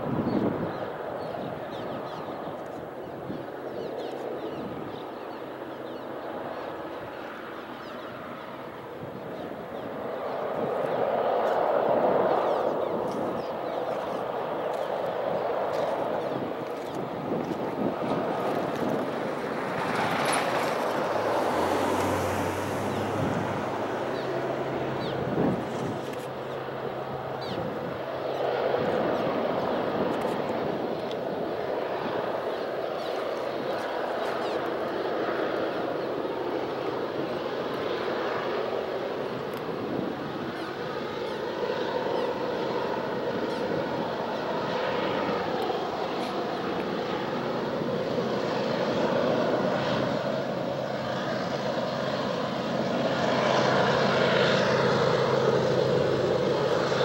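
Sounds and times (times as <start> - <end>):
distant locomotive engine drone: 5.1 - 57.0
steady rushing noise: 8.3 - 41.1.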